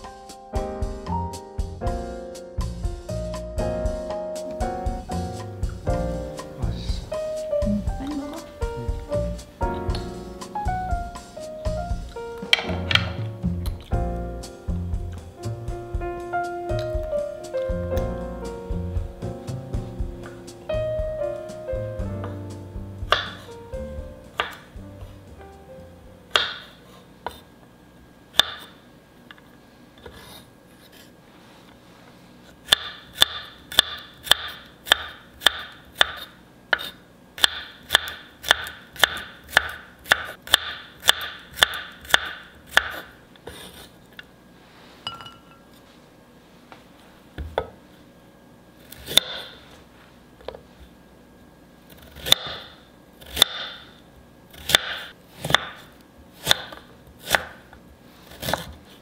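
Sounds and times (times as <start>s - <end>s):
knife slicing on wooden board: 58.2s - 58.8s.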